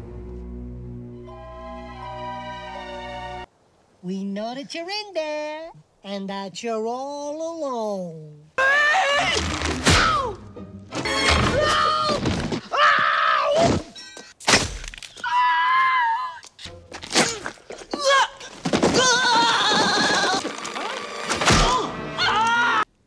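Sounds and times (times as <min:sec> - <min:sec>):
background music: 0:00.0 - 0:03.5, 0:09.2 - 0:12.0, 0:20.1 - 0:22.9
person yelling and groaning: 0:08.6 - 0:10.4.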